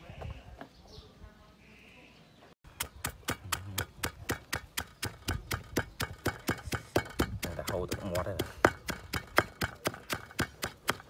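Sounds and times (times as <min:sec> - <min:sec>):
pestle pounding in stone mortar: 0:02.8 - 0:11.0.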